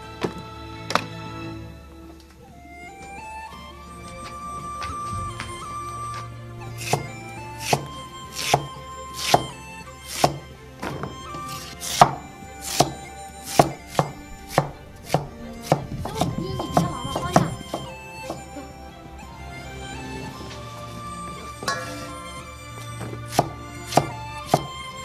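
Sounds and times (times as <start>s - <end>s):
knife chopping on board: 8.4s - 9.5s, 10.2s - 10.4s, 11.8s - 13.0s, 13.6s - 16.9s, 23.3s - 24.7s.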